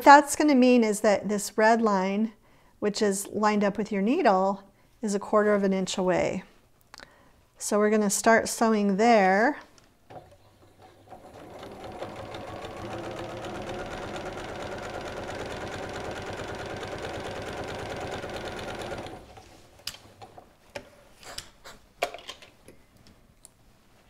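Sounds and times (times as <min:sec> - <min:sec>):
sewing machine stitching: 0:10.2 - 0:19.5.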